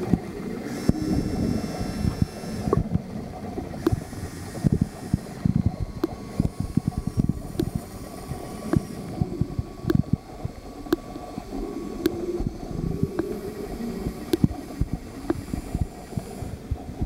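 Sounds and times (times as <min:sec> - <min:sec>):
muffled underwater rumble: 0:00.0 - 0:17.0
underwater clicks and knocks: 0:03.8 - 0:07.8, 0:08.7 - 0:11.2, 0:14.0 - 0:15.5.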